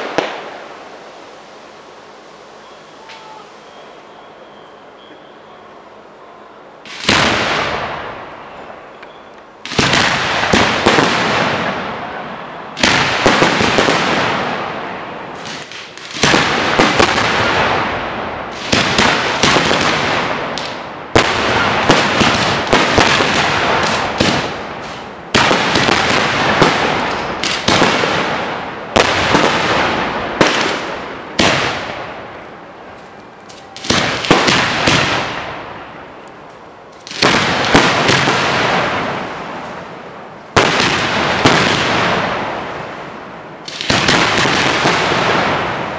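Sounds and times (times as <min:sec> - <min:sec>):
fireworks bangs: 0:00.0 - 0:02.3, 0:06.8 - 0:45.9.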